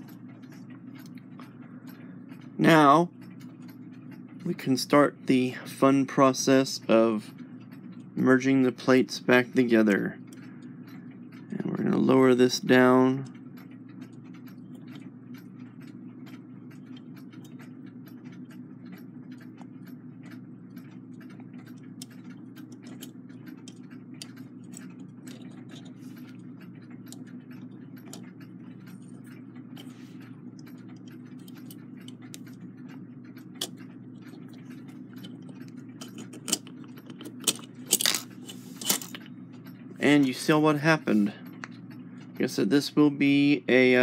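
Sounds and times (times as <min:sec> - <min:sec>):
low hum: 0:00.0 - 0:42.4
small metallic clicks and taps: 0:09.6 - 0:40.6.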